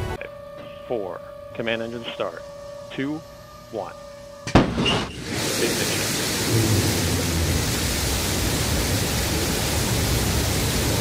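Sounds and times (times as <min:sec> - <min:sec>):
rocket engine exhaust roar: 0:04.5 - 0:11.0
deep rumble: 0:06.3 - 0:11.0.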